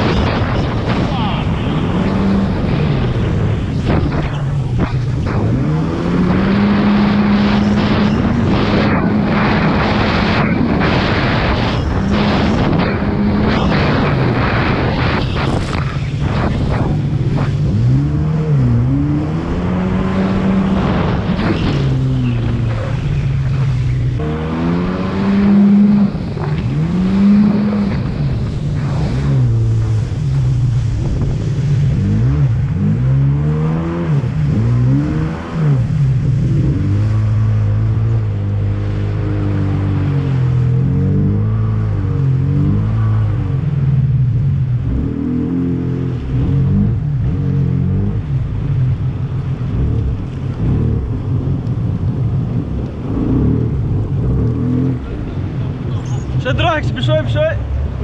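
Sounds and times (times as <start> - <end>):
water spray rushing: 0.0 - 43.5
wind on microphone: 0.0 - 56.4
jet ski engine revving: 0.0 - 58.0.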